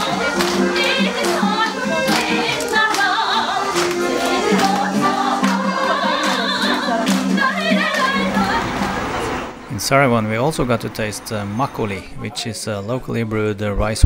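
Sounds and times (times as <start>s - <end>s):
hand-claps: 0.0s - 8.2s
people singing: 0.0s - 9.7s.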